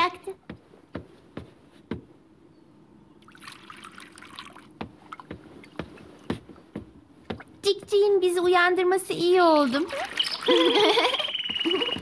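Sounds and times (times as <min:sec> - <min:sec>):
soft liquid noise: 0:03.2 - 0:06.3.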